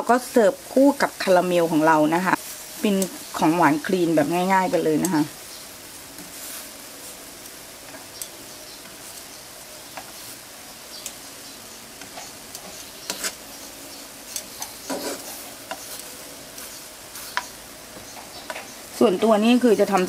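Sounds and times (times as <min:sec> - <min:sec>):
food sizzling in frying pan: 0:00.0 - 0:20.0
tongs clicking against pan: 0:02.9 - 0:03.5, 0:05.0 - 0:05.2, 0:07.4 - 0:09.1, 0:11.0 - 0:11.3, 0:12.0 - 0:13.4, 0:14.3 - 0:19.3.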